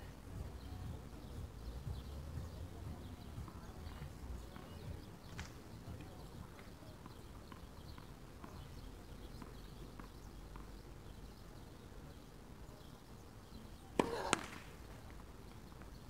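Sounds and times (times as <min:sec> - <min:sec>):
faint court ticks: 0:03.4 - 0:11.0
tennis ball struck with racquet: 0:13.9 - 0:14.7.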